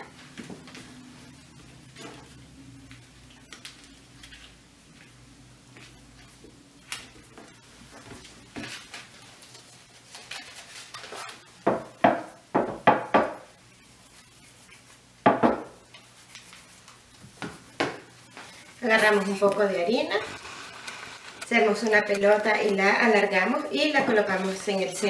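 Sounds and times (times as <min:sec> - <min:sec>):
sharp crinkles: 0:18.9 - 0:22.8.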